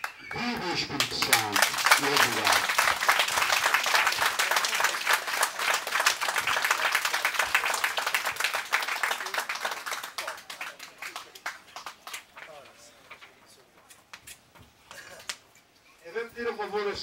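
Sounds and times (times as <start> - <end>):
crowd applauding: 0.0 - 13.2.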